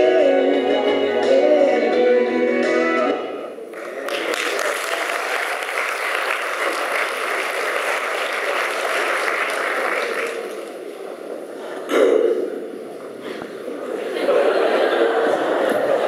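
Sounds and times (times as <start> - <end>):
congregation applauding: 3.7 - 10.9.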